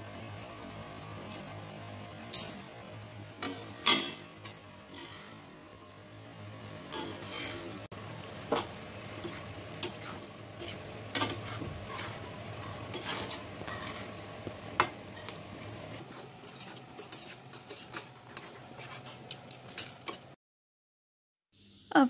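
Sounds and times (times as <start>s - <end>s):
spatula scraping metal pan: 3.4s - 5.5s, 6.9s - 7.9s, 9.2s - 14.1s, 16.0s - 20.3s.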